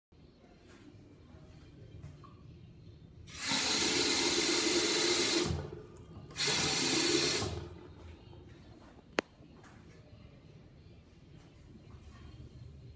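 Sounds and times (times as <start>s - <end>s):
faucet water running onto drain: 3.3s - 5.7s, 6.3s - 7.7s.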